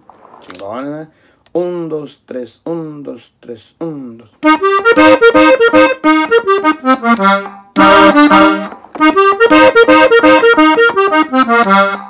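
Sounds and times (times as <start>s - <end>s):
button accordion melody: 4.4s - 12.0s
loud accordion chord: 4.4s - 12.0s.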